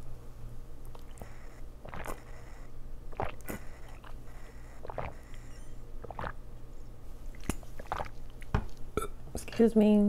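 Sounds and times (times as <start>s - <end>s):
gulping swallows: 0.9s - 6.4s, 7.3s - 8.4s.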